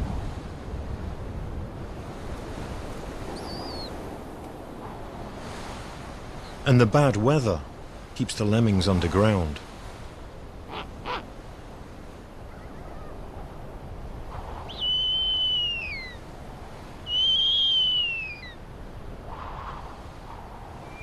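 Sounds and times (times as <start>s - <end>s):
owl screaming calls: 10.7s - 11.2s, 14.7s - 16.2s, 17.1s - 18.6s.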